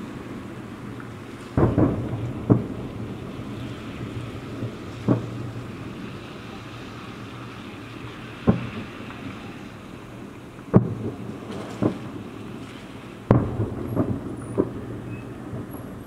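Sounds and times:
distant fireworks booms: 0.0 - 16.0
steady low rumble: 0.0 - 16.0.

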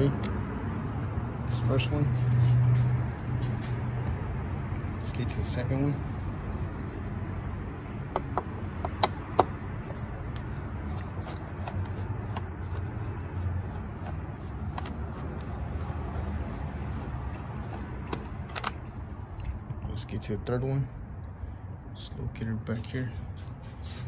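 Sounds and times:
high bird chirps: 10.8 - 19.6.

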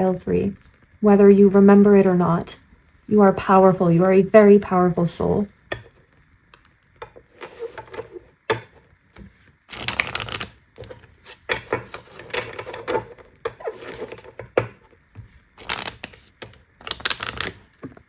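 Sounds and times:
cards being shuffled: 9.1 - 14.4, 15.2 - 18.0
card patter: 9.7 - 11.0, 15.6 - 18.0.

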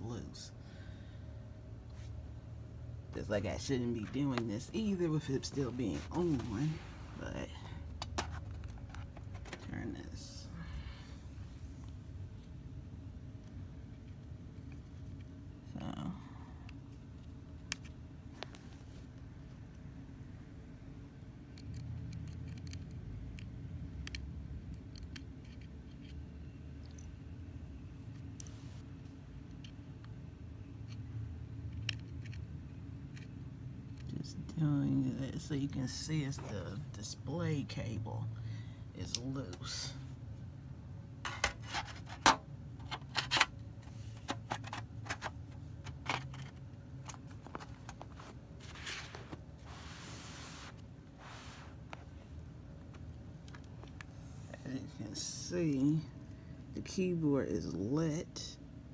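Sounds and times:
soft rustle of laptop: 1.9 - 2.2, 3.5 - 10.0, 18.3 - 19.3, 28.2 - 29.2, 45.1 - 54.9.

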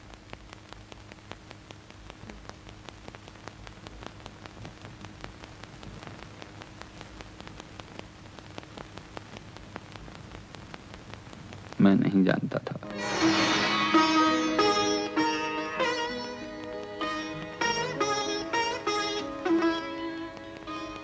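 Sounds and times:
clicks and crackle: 0.0 - 12.9, 16.0 - 21.0
film hiss: 0.0 - 21.0
low hum: 12.8 - 15.9.

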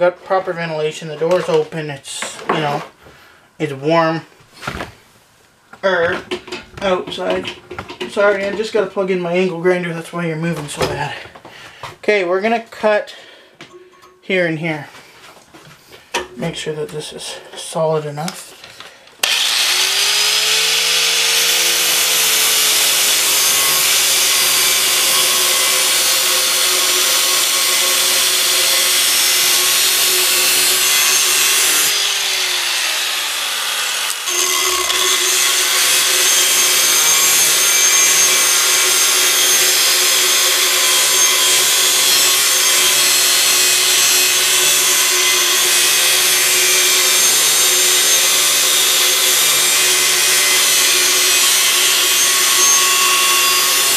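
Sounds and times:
angle grinder motor whine: 19.2 - 53.9.

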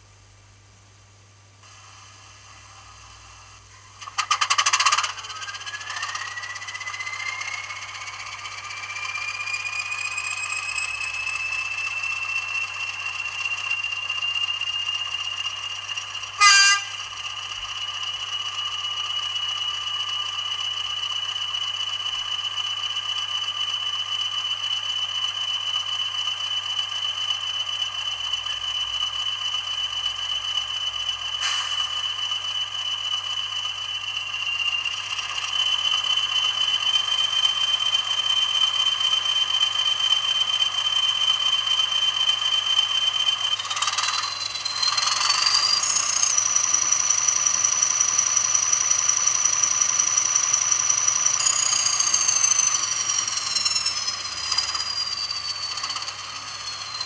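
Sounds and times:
model diesel engine with whine: 0.0 - 57.0
train horn toot: 16.4 - 17.1.

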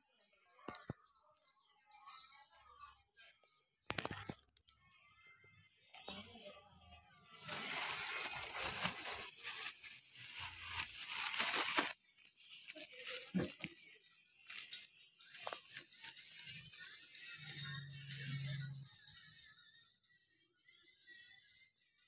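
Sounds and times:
bag rustling and crinkling: 7.3 - 12.0, 12.6 - 17.8
rice grains rattling: 7.4 - 11.9.

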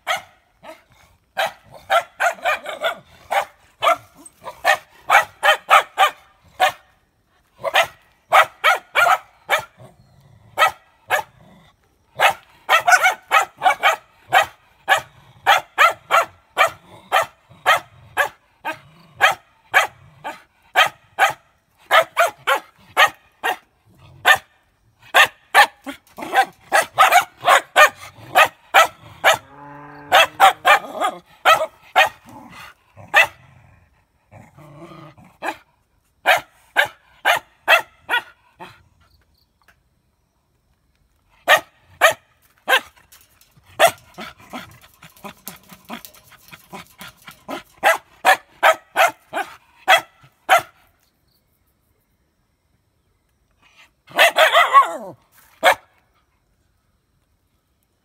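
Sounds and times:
dogs barking rapidly: 0.0 - 6.9, 7.6 - 9.8, 10.5 - 11.4, 12.2 - 33.5, 35.3 - 38.8, 41.4 - 50.8, 54.1 - 55.9
dog growling: 32.2 - 35.5.

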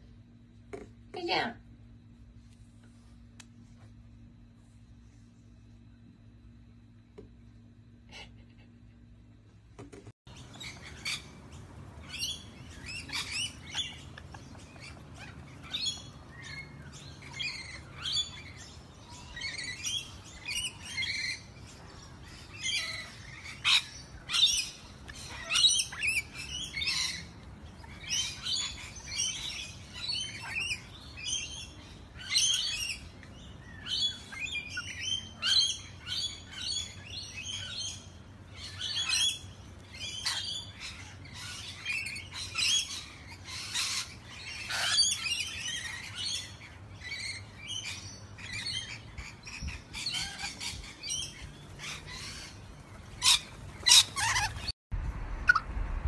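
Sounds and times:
lorikeets chattering: 10.3 - 54.7.

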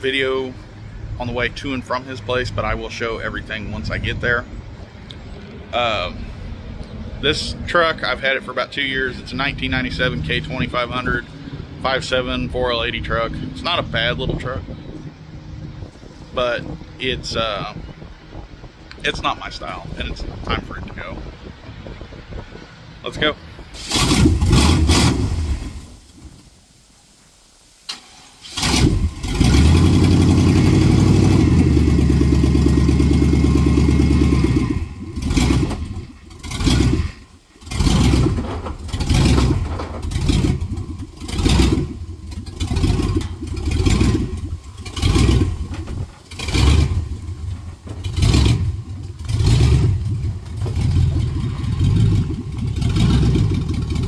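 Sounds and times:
pickup truck engine starting and running: 0.0 - 54.0.

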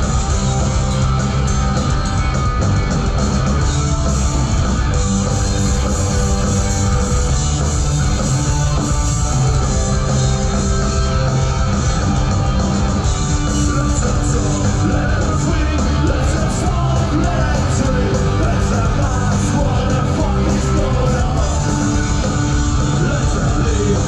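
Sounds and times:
distorted guitars: 0.0 - 24.0
drums: 0.0 - 24.0
live rock band: 0.0 - 24.0
person singing: 13.3 - 24.0.

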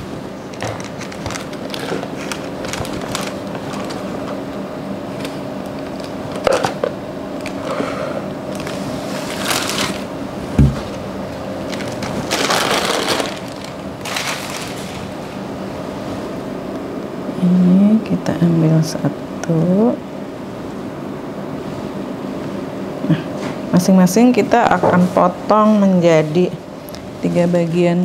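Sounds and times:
steady low hum: 0.0 - 28.0
baking paper rustling and crinkling: 0.6 - 4.4, 8.5 - 11.0, 11.6 - 15.4.

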